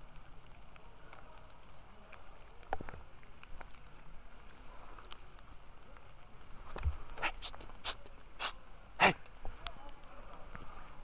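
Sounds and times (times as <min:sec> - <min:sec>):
light ticks: 0:00.0 - 0:06.1
steady rain: 0:00.0 - 0:11.0
wind: 0:00.0 - 0:11.0.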